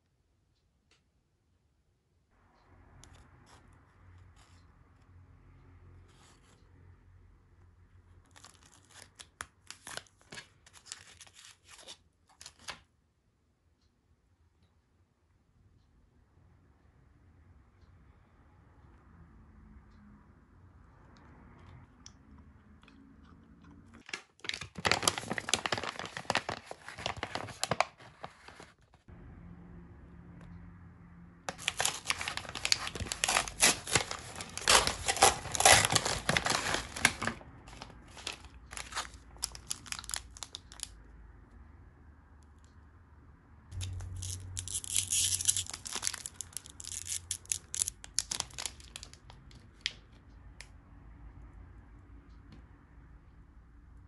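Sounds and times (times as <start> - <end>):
plastic packaging tearing and crinkling: 24.0 - 28.7, 31.5 - 40.9, 43.8 - 49.3.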